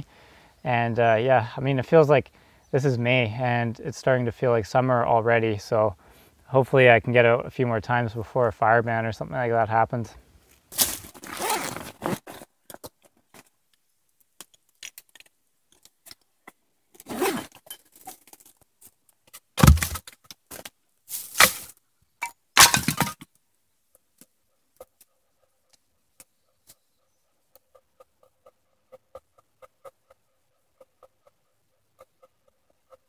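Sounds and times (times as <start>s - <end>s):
camping gear rustling and clinking: 10.4s - 13.6s, 14.4s - 23.3s
heavy thud: 19.6s - 20.0s.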